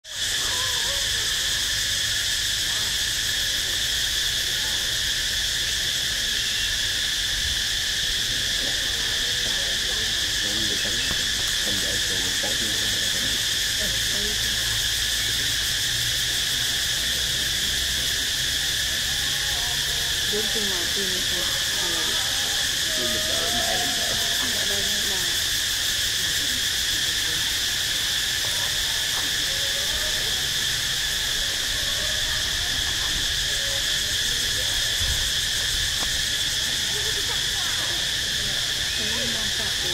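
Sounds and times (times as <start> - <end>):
insects droning in chorus: 0.0 - 39.9
faint wavering calls: 17.9 - 25.6.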